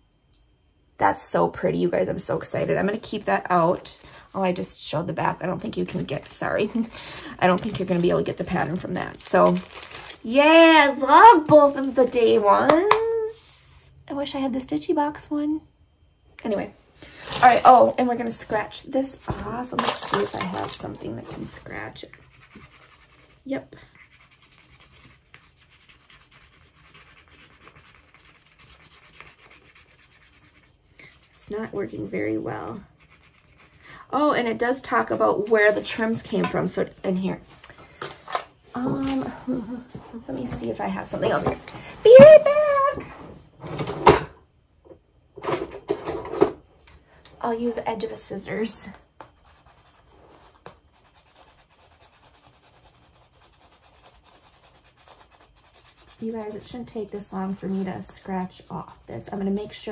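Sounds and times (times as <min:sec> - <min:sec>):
scratching scratch-off card: 0:21.4 - 0:32.2, 0:32.8 - 0:33.8, 0:49.2 - 0:56.3.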